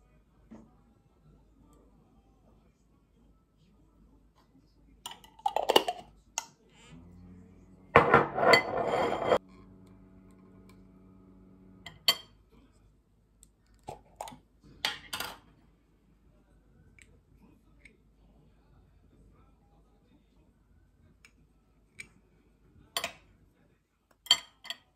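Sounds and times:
low steady hum: 0.0 - 23.6
spoon clinking and scraping on glass: 8.0 - 9.4, 11.9 - 12.4, 24.3 - 24.9.

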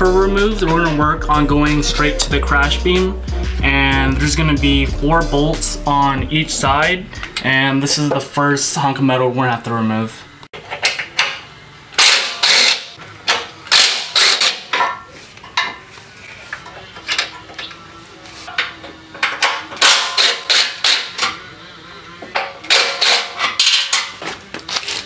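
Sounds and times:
impact driver hammering: 19.5 - 21.4.

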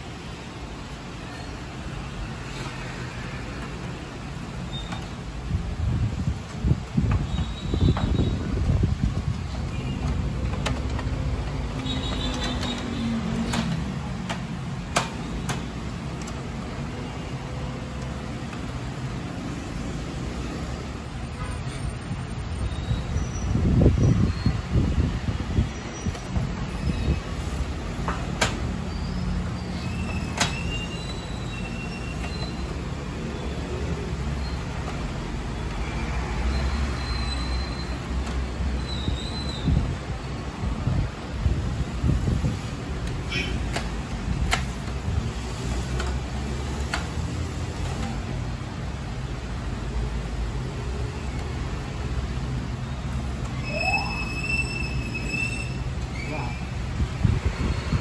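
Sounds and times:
sharp plastic clicks: 9.3 - 16.5.

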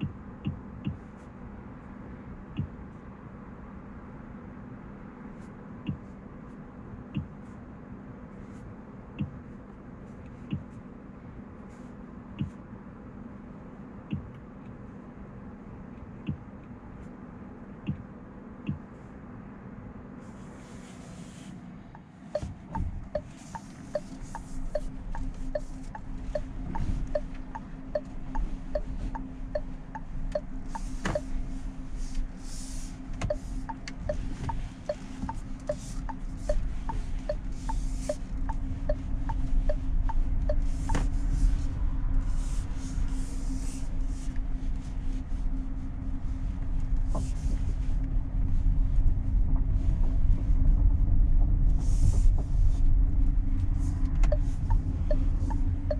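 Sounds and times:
turn indicator ticking: 0.0 - 1.2, 2.5 - 2.8, 5.8 - 6.1, 7.1 - 7.4, 9.1 - 9.4, 10.4 - 10.8, 12.4 - 12.6, 14.0 - 14.8, 15.9 - 16.8, 17.8 - 19.0, 22.0 - 32.3, 33.1 - 41.0, 54.1 - 55.9.

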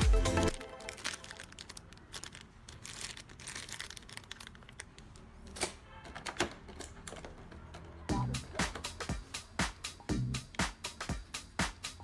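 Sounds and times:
plastic packaging crinkling: 0.5 - 5.6.

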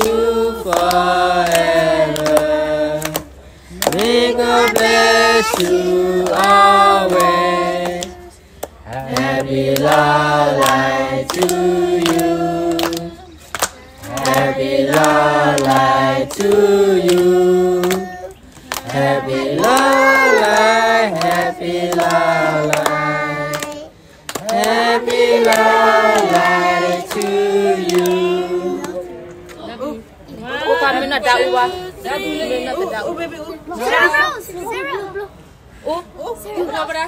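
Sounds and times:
hands clapping: 0.0 - 4.9, 12.8 - 15.8, 17.8 - 28.2
women singing together: 0.0 - 34.0.

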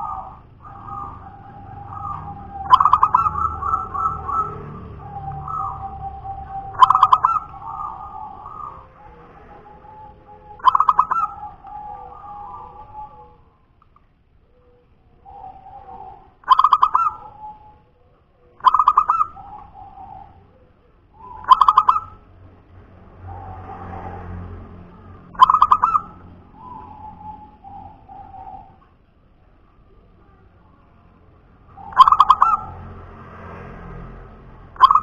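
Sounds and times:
dove singing: 0.0 - 13.7, 14.4 - 33.2, 34.2 - 35.0.

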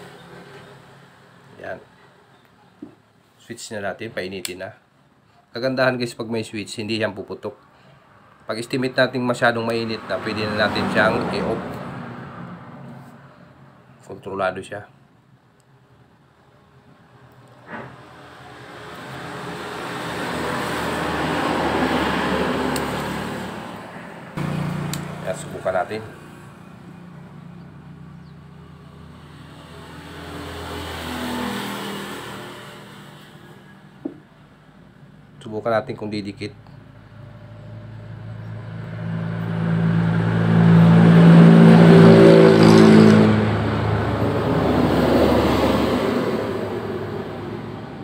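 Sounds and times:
road vehicle passing: 7.7 - 14.0, 15.9 - 35.4, 36.2 - 48.0.

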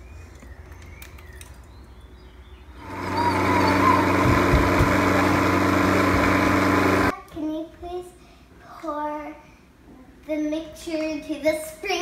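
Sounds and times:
blender motor running: 2.8 - 7.1.

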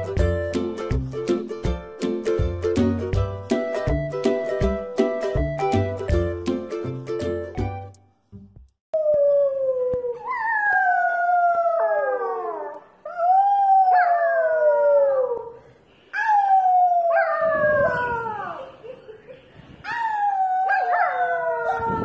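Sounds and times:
puppy howling: 9.0 - 15.6, 19.9 - 22.0.

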